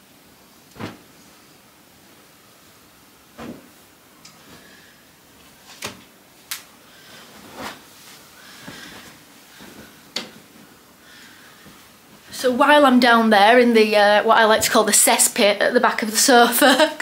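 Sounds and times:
fabric rustling: 0.4s - 13.1s.

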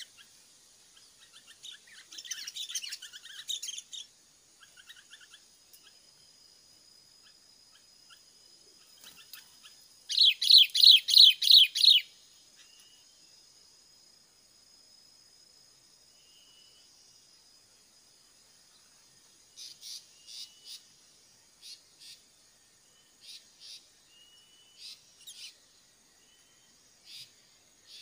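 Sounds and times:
high insect trill: 0.0s - 28.0s
faint rising bird whistles: 10.1s - 13.2s, 16.1s - 17.1s, 22.9s - 25.6s.

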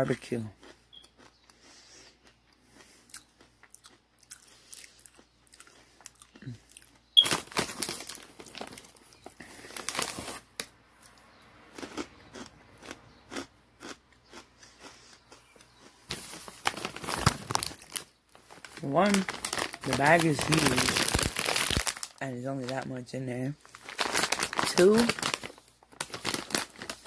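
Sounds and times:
crunchy snack chewing: 0.5s - 22.2s
loud bite crunch: 0.6s - 7.0s, 11.0s - 15.9s.

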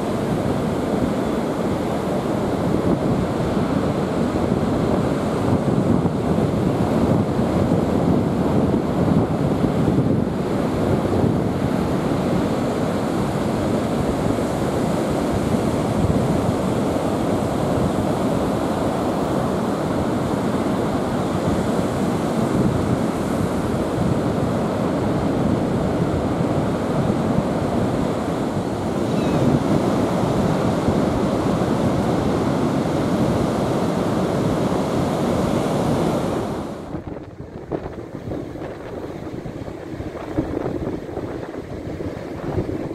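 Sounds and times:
surf breaking on beach: 0.0s - 42.9s
wind buffeting microphone: 0.0s - 42.9s.

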